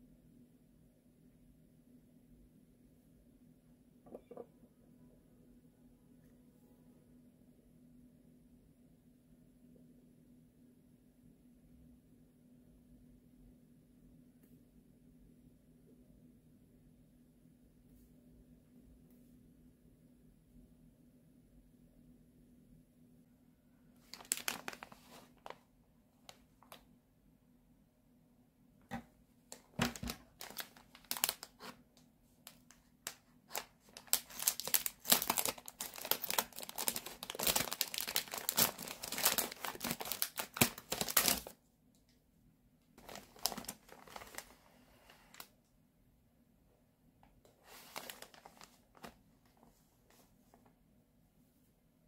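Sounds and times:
plastic wrapper crinkling: 0:24.0 - 0:25.6, 0:26.2 - 0:26.8, 0:29.5 - 0:31.8, 0:32.4 - 0:41.5, 0:43.0 - 0:44.6, 0:47.6 - 0:49.6
pack rustling: 0:33.5 - 0:41.5.

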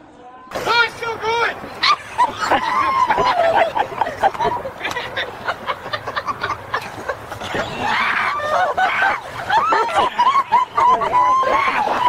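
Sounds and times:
person laughing in high voice: 0:01.8 - 0:12.0.

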